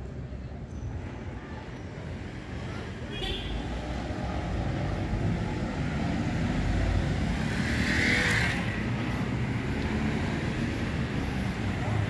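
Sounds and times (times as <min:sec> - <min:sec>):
traffic rumble: 0:00.0 - 0:12.0
bus passing: 0:03.7 - 0:12.0
motorcycle passing: 0:05.9 - 0:10.8.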